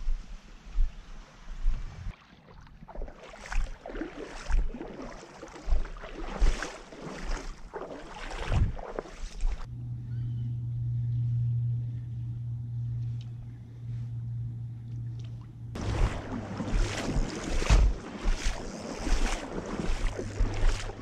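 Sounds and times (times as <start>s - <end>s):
footsteps sloshing through water: 0.0s - 9.7s, 14.8s - 21.0s.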